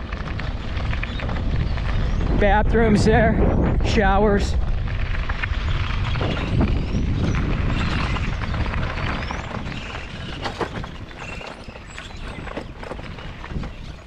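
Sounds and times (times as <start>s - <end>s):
vehicle rumbling over rough road: 0.0s - 14.0s
knocks and rattles: 6.1s - 14.0s.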